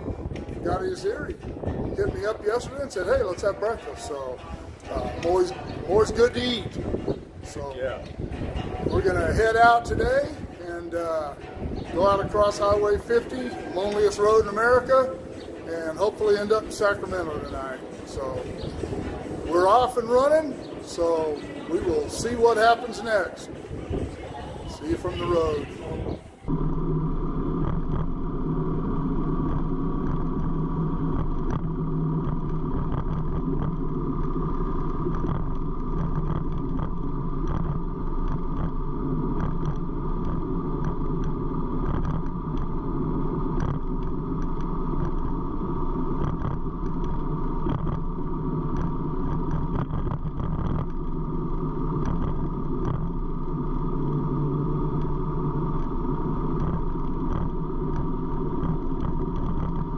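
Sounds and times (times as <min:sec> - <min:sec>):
road noise: 0:00.0 - 0:59.9
motorcycle engine running: 0:26.5 - 0:59.9.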